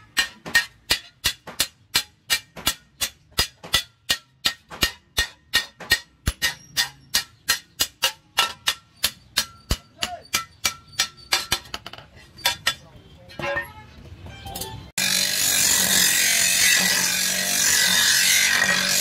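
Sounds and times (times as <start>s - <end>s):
hammer striking metal blade: 0.0s - 11.8s.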